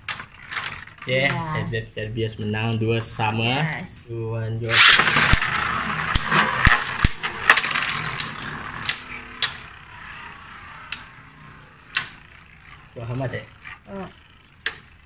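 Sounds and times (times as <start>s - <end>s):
spinning tops clacking: 0.0s - 1.6s, 4.7s - 15.0s
launcher string zip: 4.7s - 15.0s
spinning tops whirring hiss: 4.7s - 15.0s.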